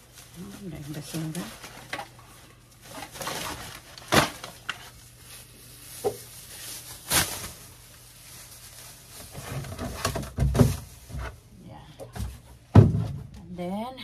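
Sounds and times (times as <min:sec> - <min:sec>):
plastic bag rustling: 0:00.0 - 0:13.4
plastic bag sharp cracks: 0:03.0 - 0:05.0, 0:05.9 - 0:11.1.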